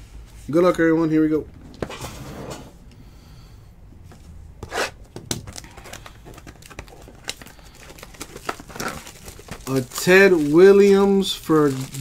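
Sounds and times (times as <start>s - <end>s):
packaging crinkling and tearing: 5.3s - 12.0s.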